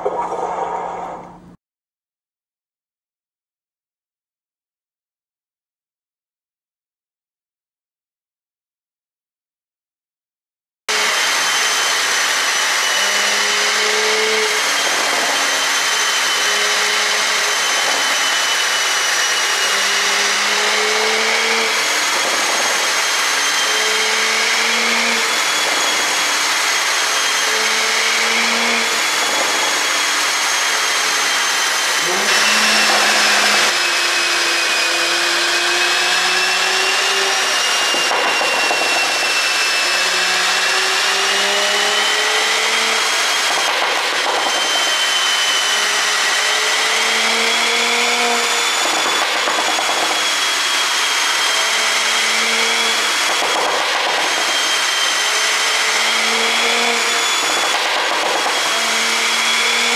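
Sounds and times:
car engine on dynamometer: 10.9s - 59.9s
steady high whine: 11.0s - 35.1s.

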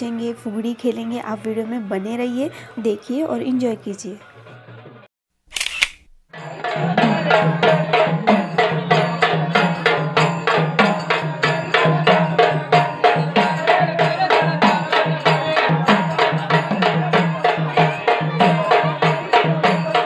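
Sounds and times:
fast drum beat: 6.6s - 20.0s.

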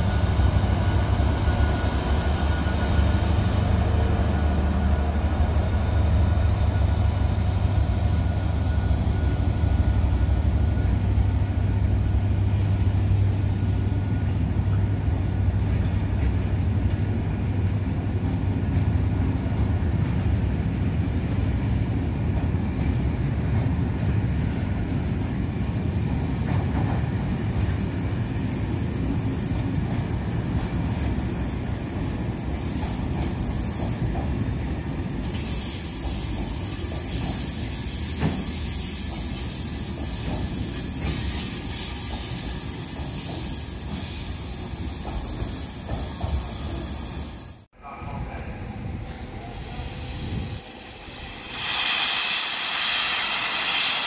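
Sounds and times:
diesel locomotive engine hum: 0.0s - 54.0s
high wheel squeal: 35.3s - 47.6s.

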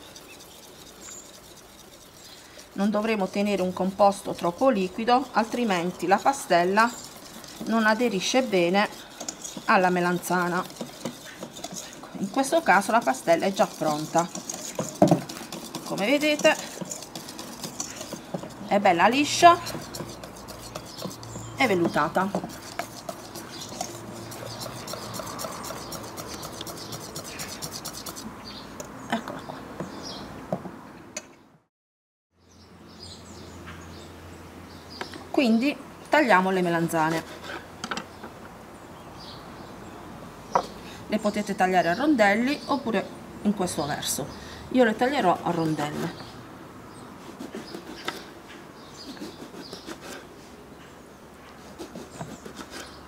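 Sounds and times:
whisk scraping metal bowl: 0.0s - 28.3s, 44.9s - 46.3s, 47.2s - 50.4s, 51.6s - 53.0s
knife cutting on wooden board: 6.1s - 28.3s, 47.3s - 48.4s, 49.0s - 50.3s, 51.6s - 53.0s.

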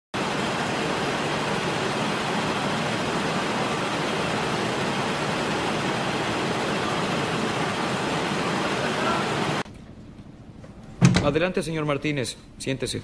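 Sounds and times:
factory machinery hiss: 0.2s - 9.6s.

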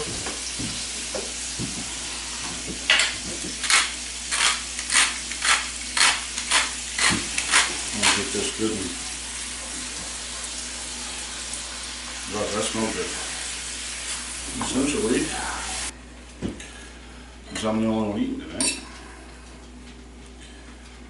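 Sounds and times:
meat sizzling in a frying pan: 0.0s - 15.9s
pepper mill grinding: 3.6s - 8.4s.

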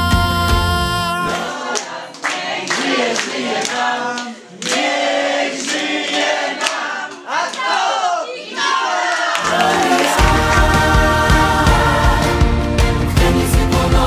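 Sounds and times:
group of people singing: 0.0s - 14.0s
people clapping in time: 1.3s - 7.8s, 9.0s - 11.9s.

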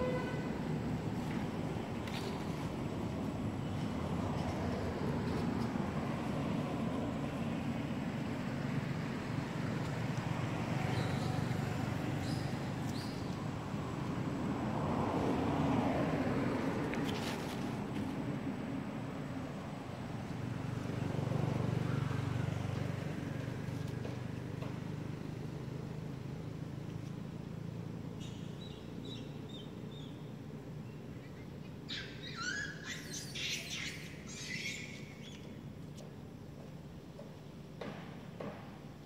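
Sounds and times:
animal chirps and squeaks: 31.3s - 35.5s.

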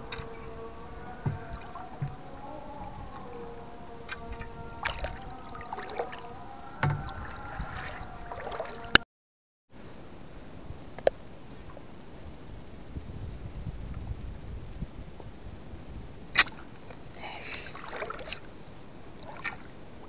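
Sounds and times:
stream water sloshing and splashing: 0.0s - 9.0s, 16.4s - 20.0s
sharp knocks: 6.8s - 7.1s.

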